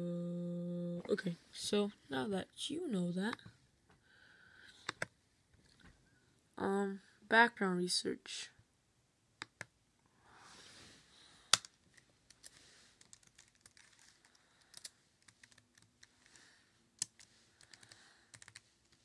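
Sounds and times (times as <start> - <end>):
laptop keyboard typing: 12.3 - 16.4, 17.0 - 19.0.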